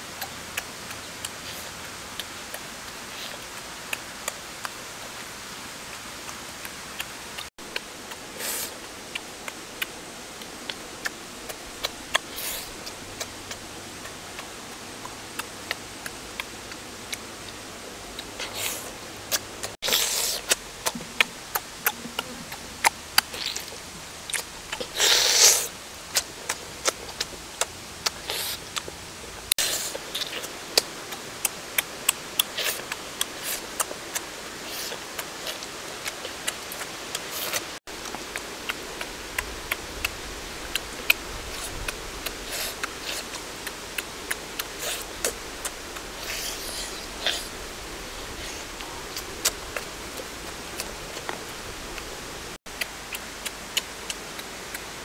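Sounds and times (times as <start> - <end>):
lip smacks and mouth clicks: 5.9 - 17.6, 18.2 - 29.0, 29.6 - 55.0
person chewing: 7.0 - 17.6, 18.2 - 54.9.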